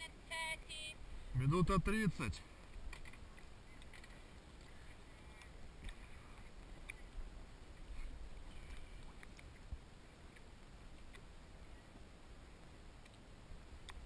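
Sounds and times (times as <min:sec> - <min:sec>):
small ticks: 0:02.6 - 0:07.2.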